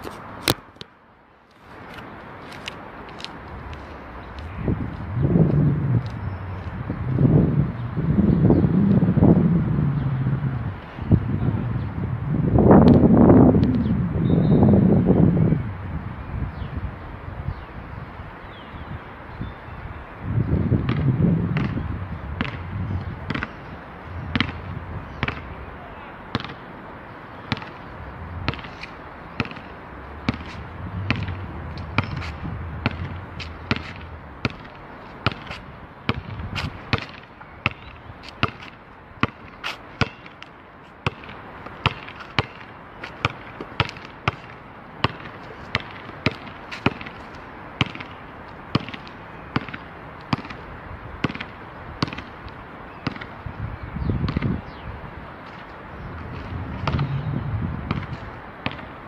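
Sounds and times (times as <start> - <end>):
basketball bouncing on asphalt: 20.6 - 25.6, 26.3 - 26.7, 27.4 - 54.8, 55.4 - 59.0.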